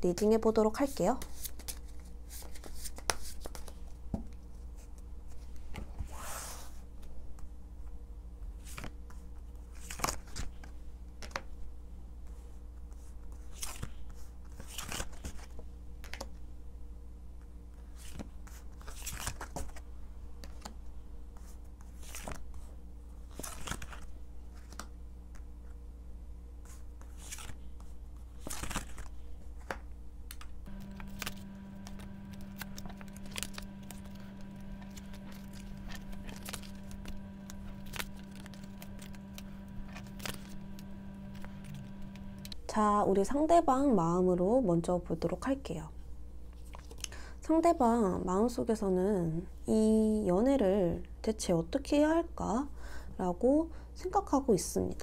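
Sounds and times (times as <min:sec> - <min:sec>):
steady low hum: 0:24.0 - 0:44.6
cards snapping and sliding: 0:28.4 - 0:37.2, 0:39.8 - 0:40.6.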